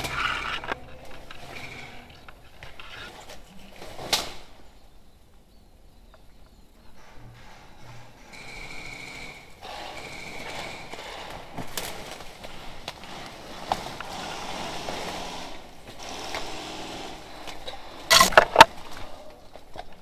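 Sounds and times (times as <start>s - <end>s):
sharp cracks: 18.1s - 18.9s.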